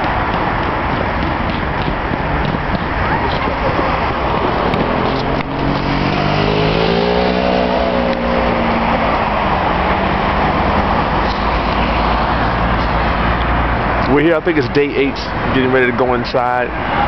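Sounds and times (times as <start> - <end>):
traffic noise: 0.0 - 17.0
car passing close by: 3.1 - 14.0.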